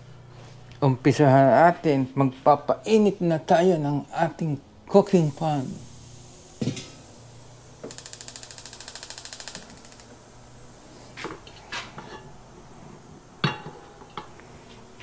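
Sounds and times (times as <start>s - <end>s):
cookware clinking: 13.4s - 14.3s.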